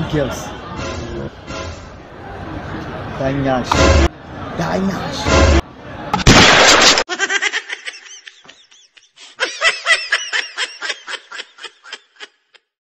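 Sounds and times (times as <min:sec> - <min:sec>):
laughter: 0:07.1 - 0:12.7.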